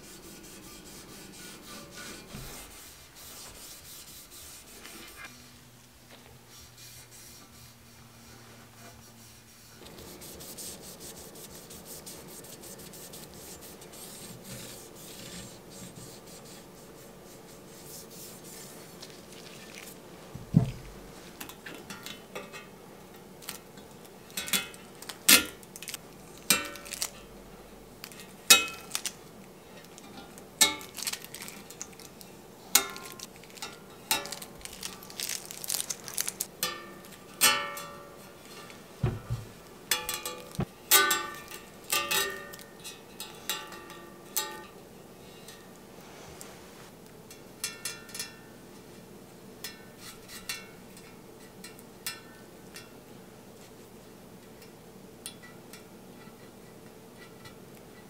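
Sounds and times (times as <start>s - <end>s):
knife scraping metal: 0.0s - 5.3s
steady rubbing: 0.0s - 5.4s, 6.4s - 21.4s.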